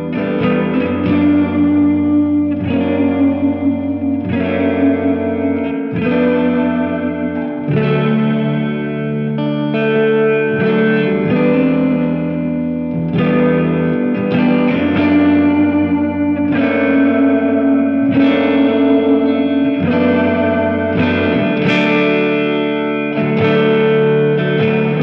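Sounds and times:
electric guitar chords: 0:00.0 - 0:25.0.

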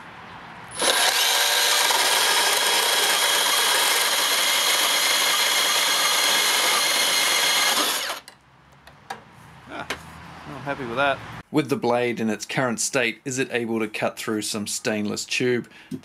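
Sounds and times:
bandsaw cutting steel: 0:00.7 - 0:08.3.

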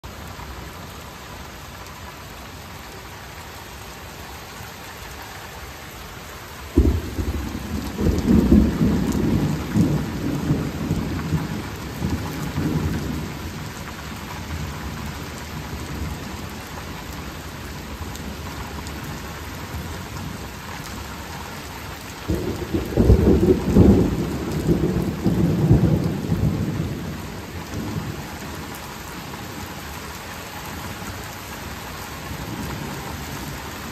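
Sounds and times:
steady rain: 0:00.0 - 0:33.9
thunder rumbling: 0:06.7 - 0:16.5, 0:22.3 - 0:28.8.

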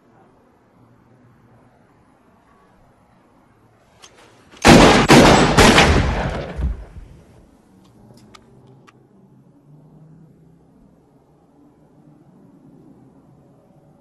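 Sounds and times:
handgun shots: 0:04.6 - 0:06.7
faint clicks: 0:07.8 - 0:09.0.

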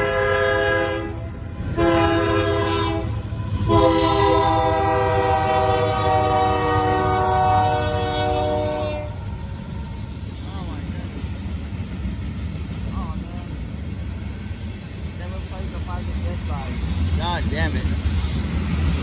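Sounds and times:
locomotive air horn blasts: 0:00.0 - 0:01.2, 0:01.8 - 0:09.2
train rumbling: 0:00.0 - 0:19.0.

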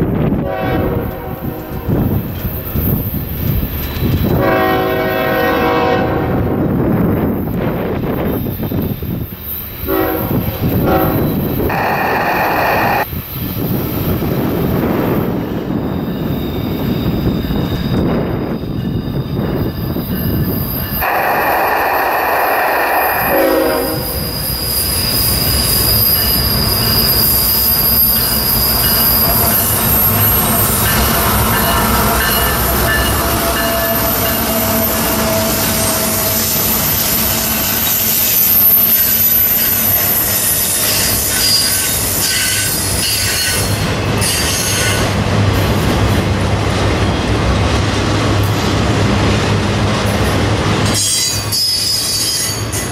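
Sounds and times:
diesel locomotives passing: 0:00.0 - 0:52.9
locomotive horn blast: 0:00.4 - 0:02.1, 0:04.4 - 0:06.5, 0:09.9 - 0:13.0, 0:21.0 - 0:24.3, 0:29.2 - 0:37.9
wheel squeal: 0:15.9 - 0:45.1, 0:51.0 - 0:52.9
rail clatter: 0:17.1 - 0:52.9.

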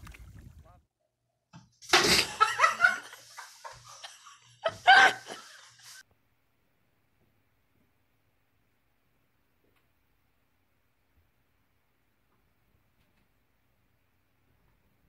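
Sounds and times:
people laughing: 0:01.9 - 0:06.0.

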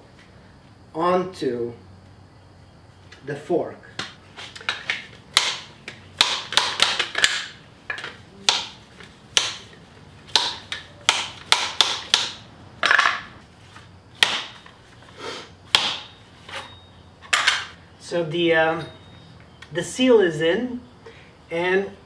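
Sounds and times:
sharp tapping knocks: 0:04.0 - 0:09.7, 0:10.3 - 0:13.2.

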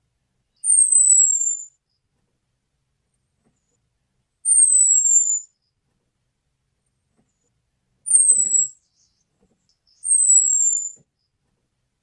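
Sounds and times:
thrush high whistling calls: 0:00.6 - 0:01.7, 0:04.5 - 0:05.5, 0:08.1 - 0:09.2, 0:09.9 - 0:11.0.

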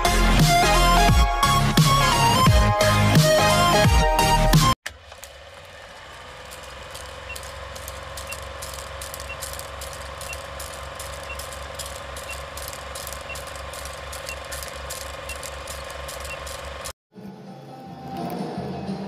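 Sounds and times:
film projector clattering: 0:04.8 - 0:17.0.

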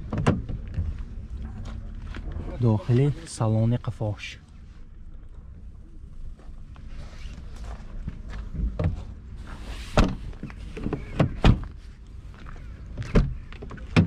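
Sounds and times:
car doors thunking and latch clicks: 0:00.0 - 0:00.9.

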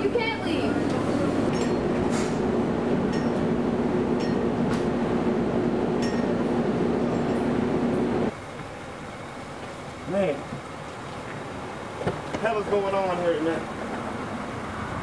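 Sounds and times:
machine hum: 0:00.0 - 0:09.5.

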